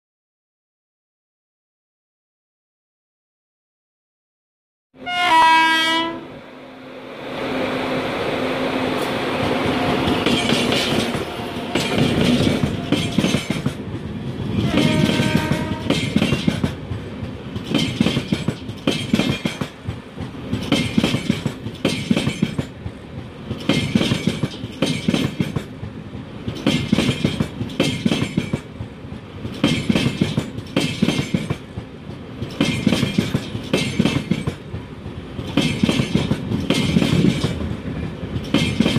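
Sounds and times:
locomotive horn blast: 5.0s - 6.3s, 14.6s - 15.9s
train wheels clacking: 9.0s - 38.9s.

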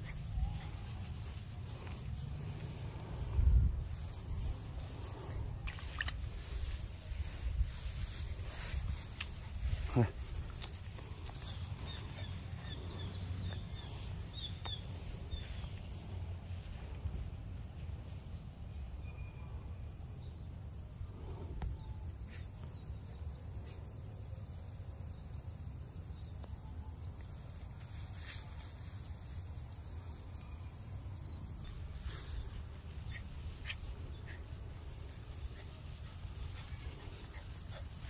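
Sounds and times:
steady low rumble: 0.0s - 17.7s
faint high insect drone: 0.0s - 38.0s.

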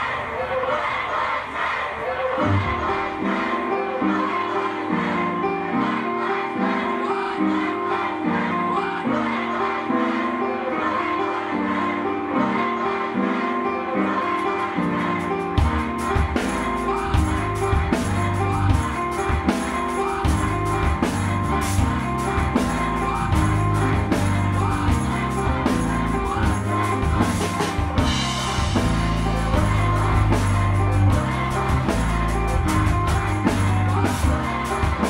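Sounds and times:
keyboards: 0.0s - 35.0s
drum kit beat: 15.2s - 35.0s
bass line: 20.3s - 35.0s.

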